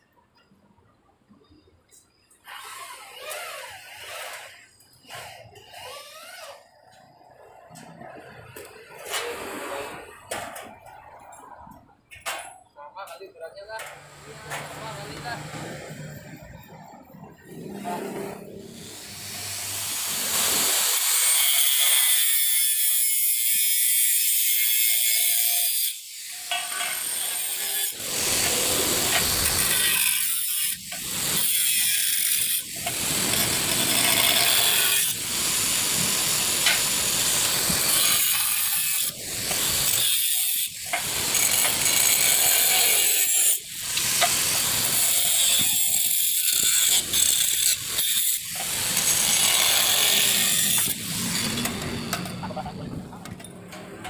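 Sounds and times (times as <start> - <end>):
angle grinder cutting steel: 13.8 - 53.2.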